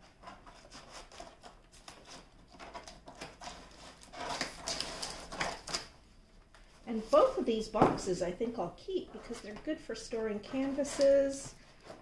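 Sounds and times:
cardboard scraping and rustling: 0.0s - 5.9s.

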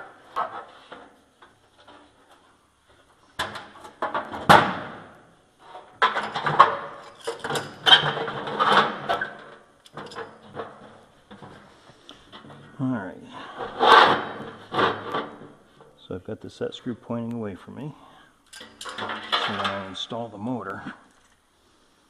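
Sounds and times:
sheet metal clanking and scraping: 5.6s - 11.6s, 13.4s - 15.6s, 18.6s - 20.0s
metal rattling: 18.5s - 20.0s.

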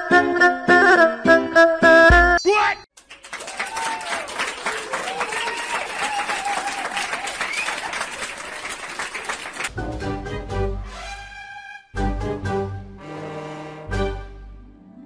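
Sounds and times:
crowd applauding: 3.0s - 9.8s.

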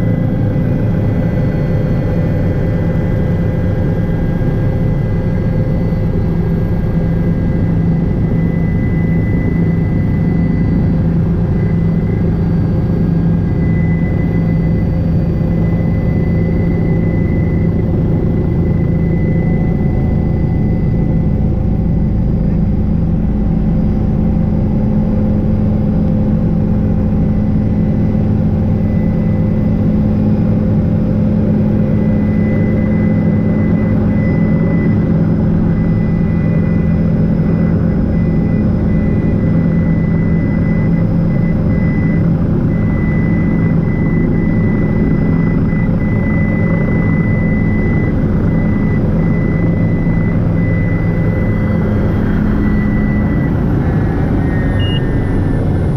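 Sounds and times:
helicopter engine and rotor: 0.0s - 55.9s
high whine: 0.0s - 55.9s.

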